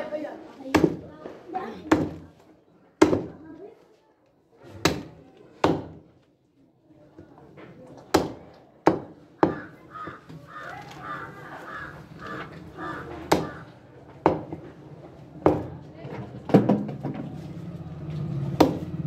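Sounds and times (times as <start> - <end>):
bird calling: 9.5 - 13.7
cleaver chopping on wooden block: 13.3 - 13.6.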